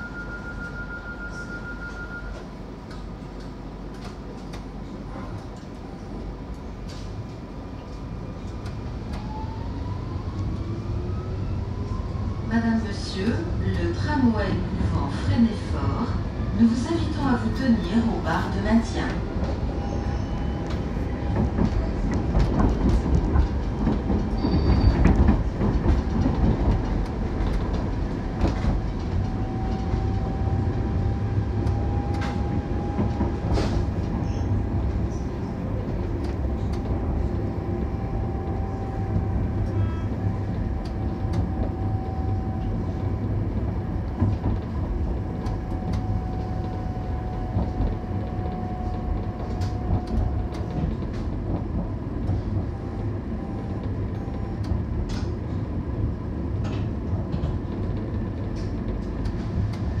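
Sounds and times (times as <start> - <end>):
tram wheels rumbling on rail: 0.0 - 60.0
rail clicks and knocks: 2.3 - 9.3, 20.6 - 30.4, 31.0 - 37.5, 40.5 - 60.0.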